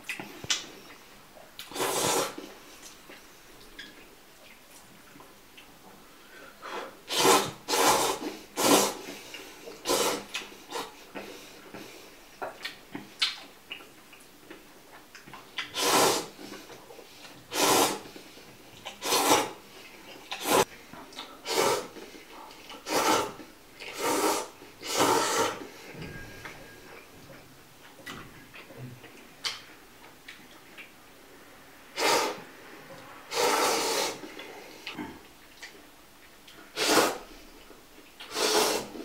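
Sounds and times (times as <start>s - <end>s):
man slurping noodles: 1.6s - 2.4s, 7.1s - 9.1s, 9.8s - 10.9s, 15.7s - 16.4s, 17.5s - 18.1s, 19.0s - 19.6s, 21.4s - 22.0s, 22.8s - 25.6s, 32.0s - 32.4s, 33.3s - 34.3s, 36.8s - 37.2s, 38.2s - 39.0s
small mouth noises: 12.4s - 16.8s.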